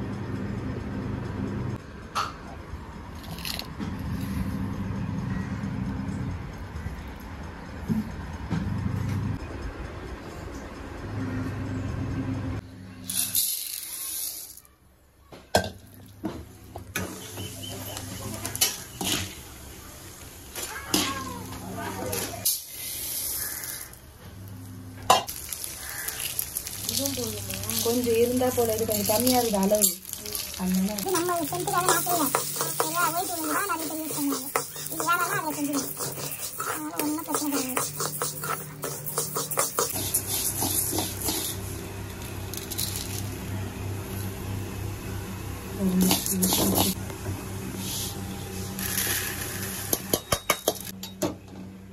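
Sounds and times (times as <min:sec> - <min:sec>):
dry lentils poured into pan: 0:13.1 - 0:14.6, 0:22.5 - 0:24.0, 0:25.3 - 0:35.1, 0:48.7 - 0:49.9
oil sizzling: 0:15.8 - 0:45.4, 0:46.0 - 0:50.9
steel spoon scraping a pan: 0:25.4 - 0:41.7.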